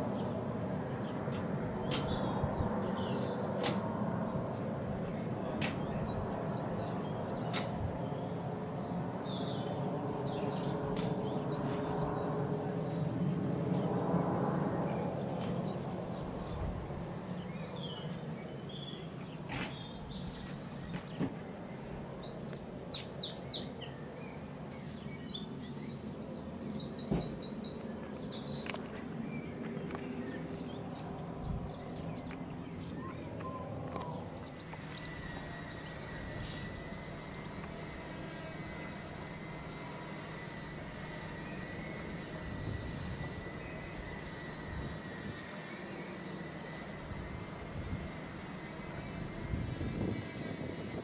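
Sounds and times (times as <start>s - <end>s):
jet engine rumble: 0.0s - 24.7s, 25.7s - 51.0s
small birds singing: 0.0s - 51.0s.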